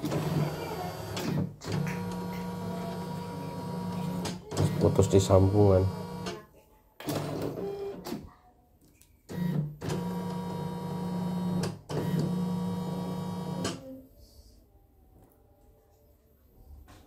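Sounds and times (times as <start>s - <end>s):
embroidery machine motor hum: 0.0s - 6.4s, 9.3s - 13.8s.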